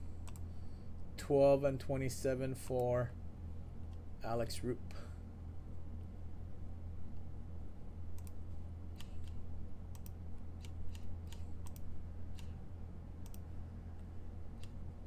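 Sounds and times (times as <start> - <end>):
low hum: 0.0 - 15.0
keyboard typing clicks: 0.2 - 0.5, 8.1 - 8.4, 9.0 - 12.6, 13.2 - 13.5.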